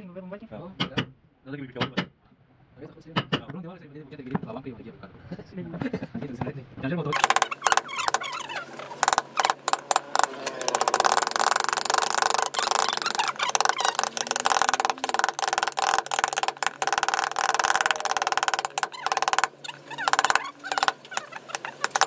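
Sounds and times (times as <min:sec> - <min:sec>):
wooden mallets striking chisels: 0:07.2 - 0:22.0.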